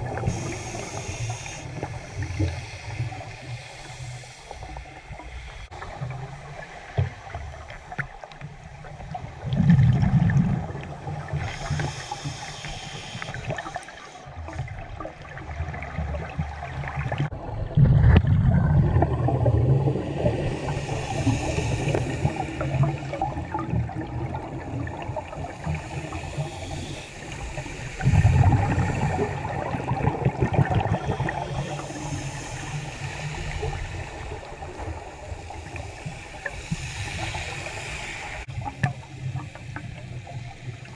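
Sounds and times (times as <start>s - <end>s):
regulator inhale hiss: 0.0s - 8.4s, 11.2s - 14.5s, 19.9s - 24.0s, 24.9s - 29.8s, 30.8s - 40.9s
exhaled bubbles underwater: 0.0s - 40.9s.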